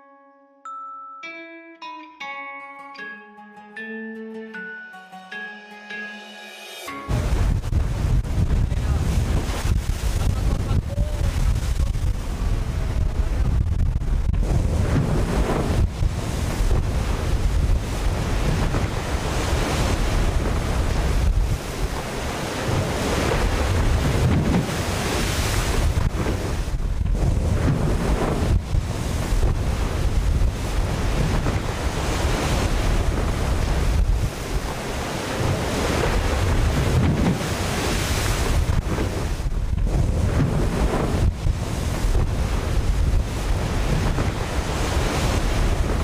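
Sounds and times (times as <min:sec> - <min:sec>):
water rushing past hulls: 0:06.9 - 0:46.0
heavy low rumble: 0:07.1 - 0:18.9
wind buffeting microphone: 0:07.1 - 0:46.0.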